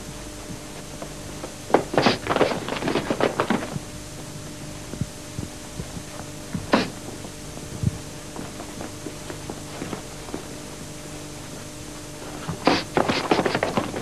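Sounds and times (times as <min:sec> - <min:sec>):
faint steady hum: 0:00.0 - 0:14.0
sparring hits on a mat: 0:12.4 - 0:14.0.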